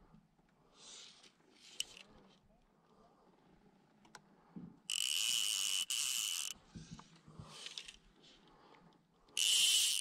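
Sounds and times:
soft clicks and handling noises: 3.8s - 4.3s, 6.5s - 9.4s
fly reel drag buzzing: 4.9s - 6.6s, 9.4s - 10.0s.

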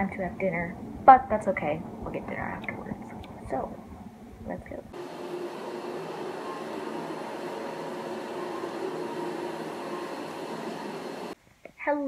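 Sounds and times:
low mechanical hum: 0.0s - 11.4s
faint steady tones: 4.9s - 11.4s.

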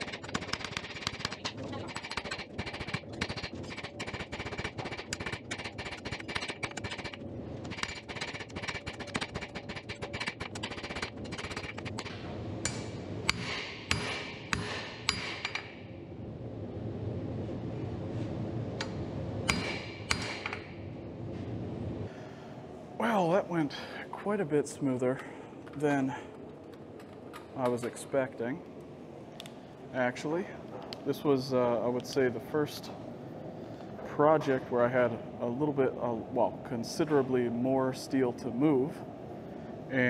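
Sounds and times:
hammer striking metal on anvil: 12.0s - 15.8s, 19.5s - 20.8s.

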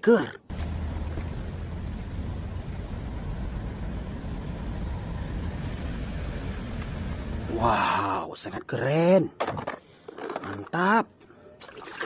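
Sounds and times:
traffic noise: 0.4s - 8.5s
bus engine rumble: 0.5s - 7.7s.

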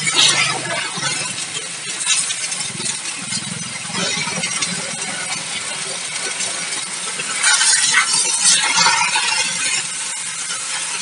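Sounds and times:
water jet hissing: 0.0s - 11.0s.

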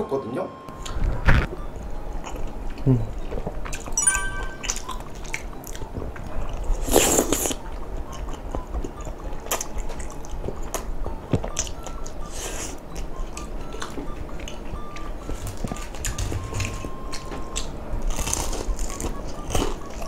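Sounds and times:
wet chewing: 4.6s - 20.0s.

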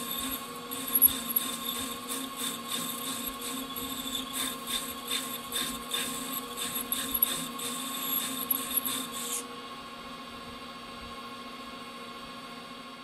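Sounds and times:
lathe humming: 0.0s - 9.4s
parting tool cutting metal: 0.0s - 9.4s.

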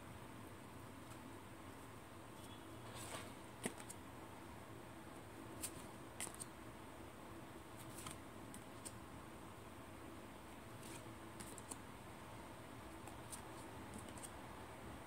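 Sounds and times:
cards clicking and sliding: 5.6s - 6.5s, 7.8s - 9.0s, 10.8s - 11.8s, 13.0s - 14.4s.

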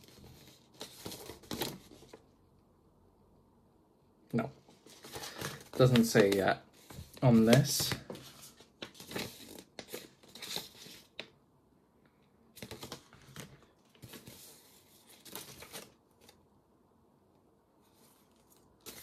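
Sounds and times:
paper rustling and crinkling: 0.0s - 2.2s, 4.7s - 11.2s, 12.6s - 16.4s, 17.9s - 19.0s.

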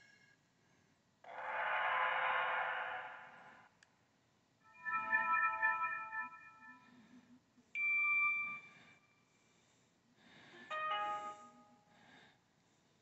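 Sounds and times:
phone ringtone chimes: 4.7s - 7.1s, 7.8s - 8.8s, 10.7s - 11.6s.

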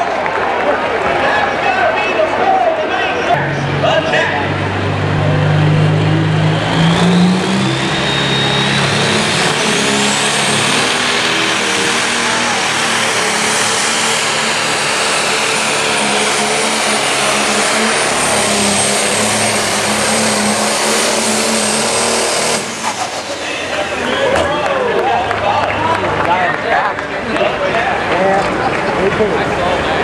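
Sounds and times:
diesel engine running flat out: 3.3s - 30.0s
high turbo whistle: 6.3s - 11.7s.

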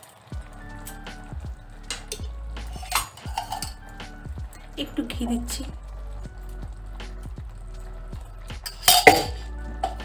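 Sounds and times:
music with low drum beats: 0.4s - 10.0s.

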